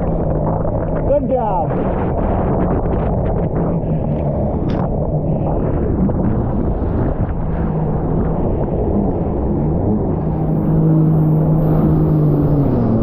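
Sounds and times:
jet ski engine humming: 0:00.0 - 0:13.0
low rush of noise: 0:00.0 - 0:13.0.

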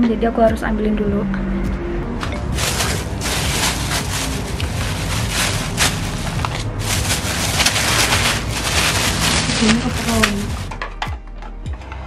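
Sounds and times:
paper-wrapped food handled: 0:02.5 - 0:10.8
plastic bag rustling: 0:02.5 - 0:10.8.

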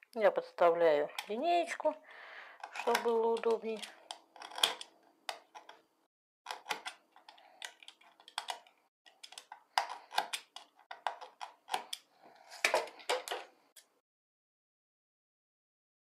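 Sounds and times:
knife cutting wooden sticks: 0:02.6 - 0:05.8, 0:06.5 - 0:13.9.

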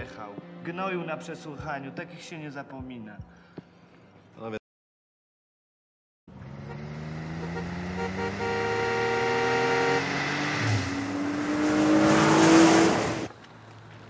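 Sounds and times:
cars speeding along road: 0:06.3 - 0:14.0
car horn: 0:06.5 - 0:11.2
car whooshing past: 0:09.4 - 0:13.3.

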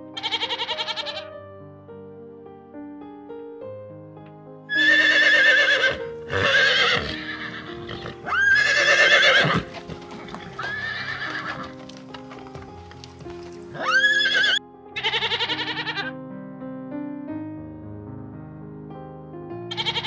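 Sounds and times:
background music with sustained notes: 0:00.0 - 0:20.0
horse neighing: 0:00.2 - 0:01.3, 0:04.7 - 0:11.7, 0:13.6 - 0:16.1, 0:19.7 - 0:20.0.

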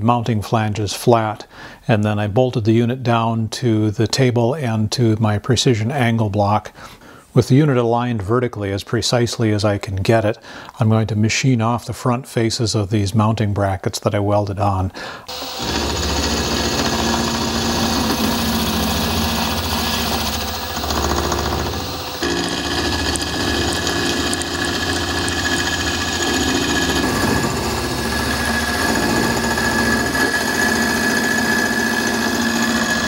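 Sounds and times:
high whine: 0:15.3 - 0:33.0
milling machine cutting steel: 0:15.3 - 0:33.0.

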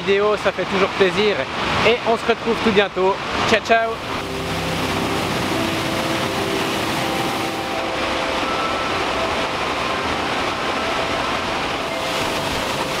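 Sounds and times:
waterfall rushing into pool: 0:00.0 - 0:13.0
soft background music: 0:03.6 - 0:13.0.

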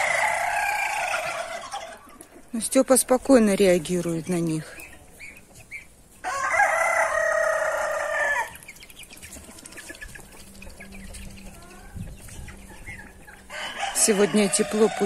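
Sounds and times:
rooster crowing: 0:00.0 - 0:01.9, 0:06.2 - 0:08.5, 0:13.4 - 0:15.0
poultry clucking and peeping: 0:00.0 - 0:15.0.

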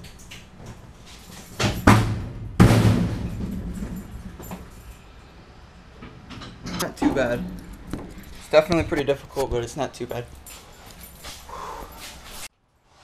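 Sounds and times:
metal cabinet knocking: 0:01.6 - 0:04.7
loud ringing bang: 0:01.7 - 0:05.0.

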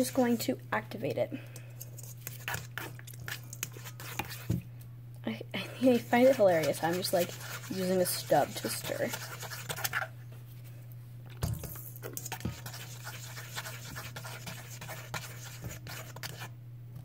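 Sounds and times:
steady low hum: 0:00.0 - 0:17.0
spoon scraping metal bowl: 0:01.8 - 0:04.5, 0:05.8 - 0:10.1, 0:12.1 - 0:16.5.

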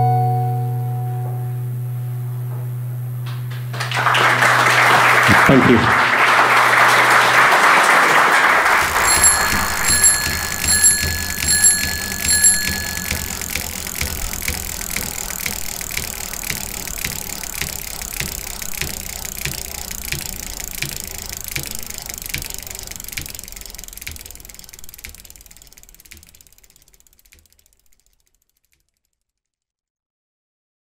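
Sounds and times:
mechanical ticking: 0:08.8 - 0:28.8.

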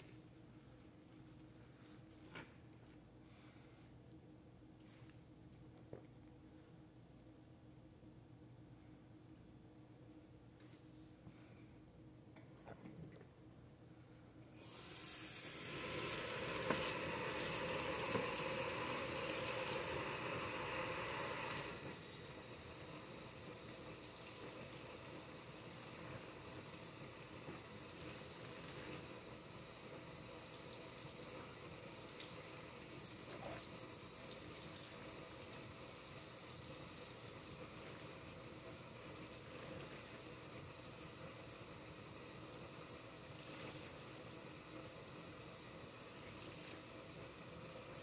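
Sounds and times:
water running into a sink: 0:14.6 - 0:48.0.

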